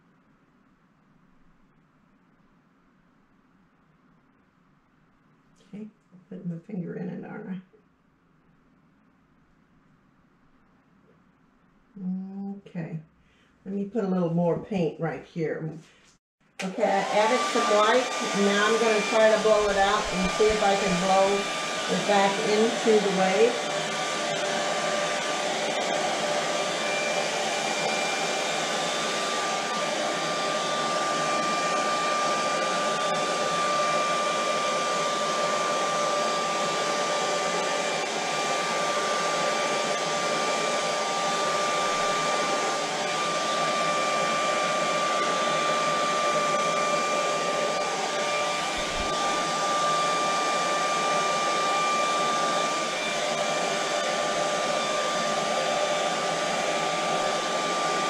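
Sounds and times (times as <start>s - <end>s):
hair dryer blowing air: 16.6s - 58.0s.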